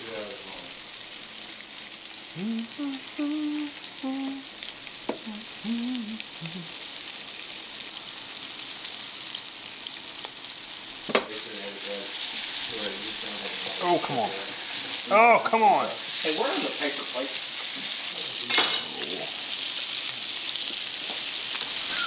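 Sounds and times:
fish frying in hot oil: 0:00.0 - 0:22.0
person making short voiced notes: 0:02.4 - 0:04.4, 0:05.2 - 0:06.7.

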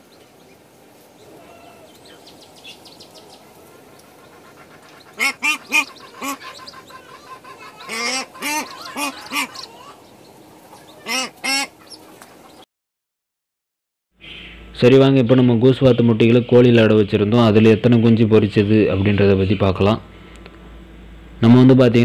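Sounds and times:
goslings peeping faintly: 0:00.0 - 0:12.6
goose honking: 0:03.0 - 0:12.4.

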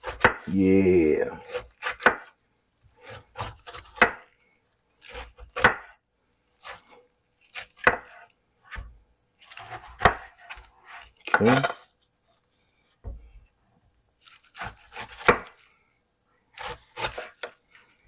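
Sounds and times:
knife chopping on cutting board: 0:00.0 - 0:00.6, 0:01.4 - 0:02.3, 0:03.0 - 0:04.3, 0:05.0 - 0:06.0, 0:07.5 - 0:08.9, 0:09.5 - 0:10.6, 0:14.2 - 0:15.7, 0:16.6 - 0:17.6
knife sawing and scraping: 0:00.0 - 0:04.4, 0:05.0 - 0:08.8, 0:09.4 - 0:11.6, 0:14.2 - 0:18.0.

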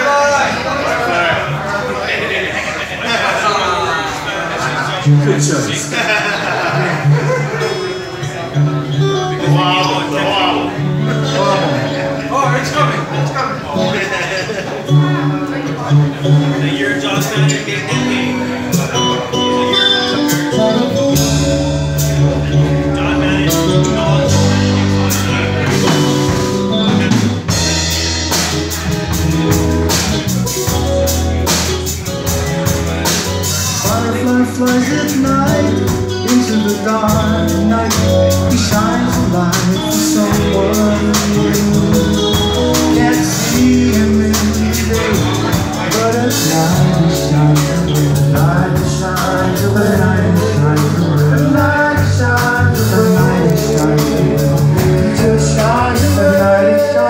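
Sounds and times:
acoustic guitars strumming: 0:02.7 - 0:57.0
man singing: 0:08.8 - 0:30.0, 0:32.6 - 0:57.0
drum kit: 0:14.6 - 0:57.0
electric bass line: 0:14.9 - 0:57.0.

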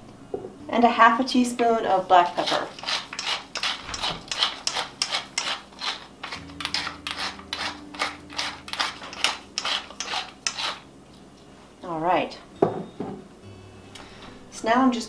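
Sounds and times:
pepper mill grinding: 0:02.1 - 0:10.9.

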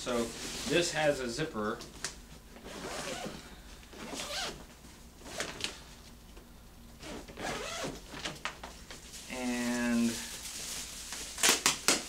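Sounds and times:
zipper pulled open: 0:02.7 - 0:03.4, 0:07.0 - 0:08.0.

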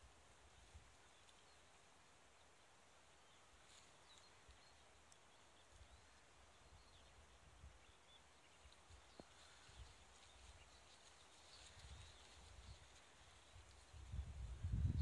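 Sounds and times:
faint bird chirps: 0:00.5 - 0:15.0
wind rumble on microphone: 0:11.5 - 0:15.0.

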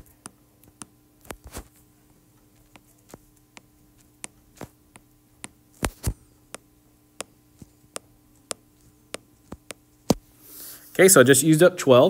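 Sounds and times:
faint electrical hum: 0:00.0 - 0:12.0
stylus tapping on glass screen: 0:02.7 - 0:10.2.

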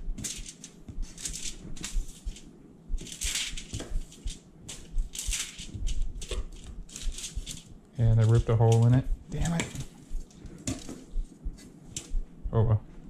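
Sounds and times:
foil crinkling: 0:00.2 - 0:09.0.

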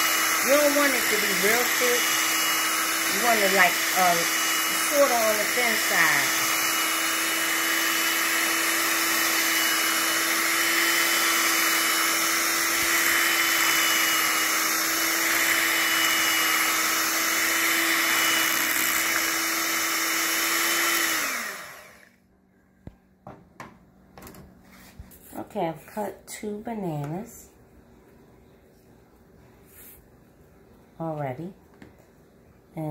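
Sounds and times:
electric hand mixer whirring: 0:00.0 - 0:22.2.

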